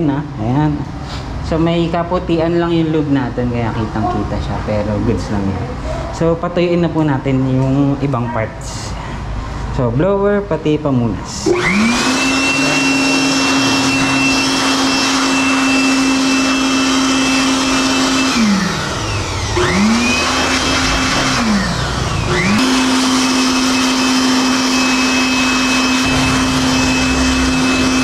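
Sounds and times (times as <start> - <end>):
electric blower whining: 11.4 - 28.0.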